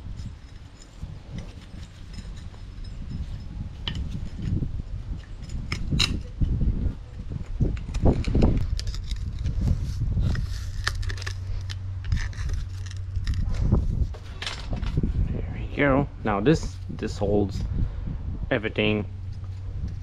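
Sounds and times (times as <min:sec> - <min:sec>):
metal tools clinking: 0:00.0 - 0:09.6, 0:10.3 - 0:13.6, 0:14.2 - 0:15.0
low rumbling handling noise: 0:00.0 - 0:20.0.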